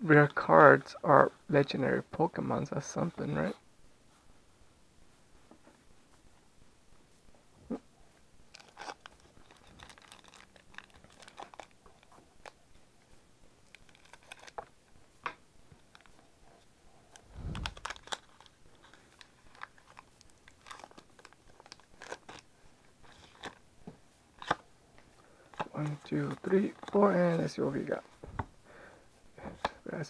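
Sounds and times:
foil wrapper crinkling and tearing: 8.5s - 12.6s, 13.6s - 14.7s, 17.6s - 22.5s
trading cards being handled: 13.6s - 14.8s, 17.1s - 22.5s, 25.5s - 28.5s.

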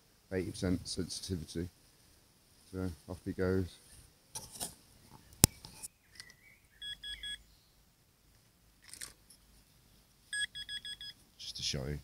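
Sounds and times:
metal detector beeps: 6.8s - 7.4s, 10.3s - 11.2s.

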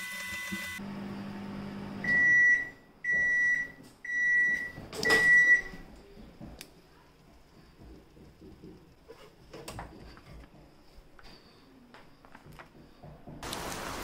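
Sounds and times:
microwave high beeps: 0.0s - 5.9s
microwave oven humming: 0.0s - 6.3s.

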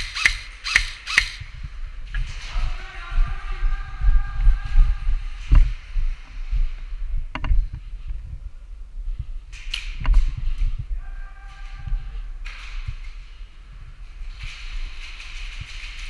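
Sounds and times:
airsoft gun snaps: 0.0s - 1.5s
thumps and rustling on microphone: 4.0s - 11.0s.

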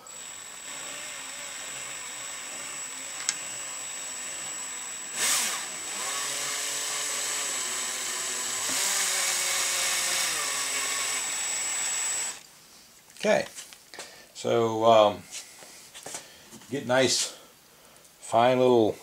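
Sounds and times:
cordless drill cutting: 0.0s - 12.4s.

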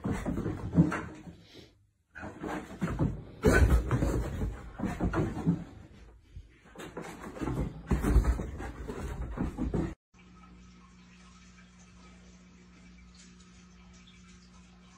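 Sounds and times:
dog paws scrabbling: 0.0s - 1.3s, 2.2s - 10.0s.

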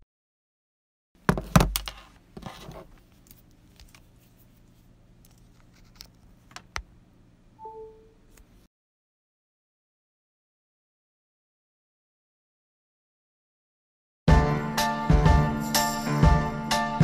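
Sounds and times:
loud handling knocks: 1.2s - 1.9s
faint steady hum: 1.2s - 8.7s
brief tone: 7.6s - 8.2s.

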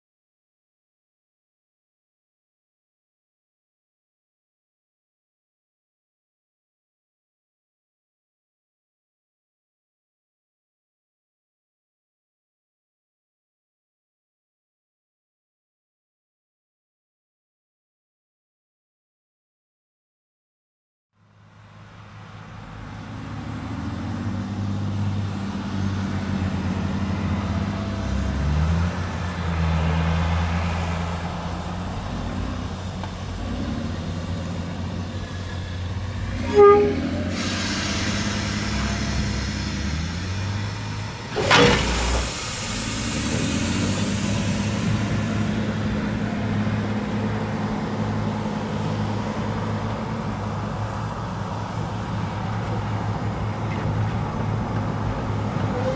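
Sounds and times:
low engine hum: 21.2s - 55.9s
rushing noise: 25.6s - 55.9s
short toot: 36.4s - 38.1s
loud bang: 41.3s - 42.9s.

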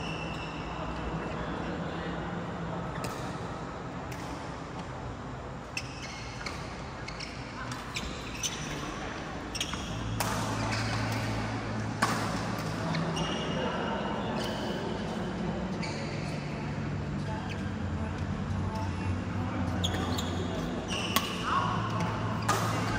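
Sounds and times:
rackets hitting shuttlecocks: 9.8s - 12.9s, 21.1s - 22.9s.

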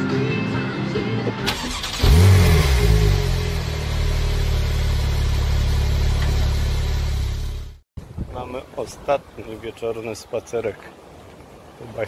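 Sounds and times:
vehicle engine revving and running: 1.8s - 7.8s.

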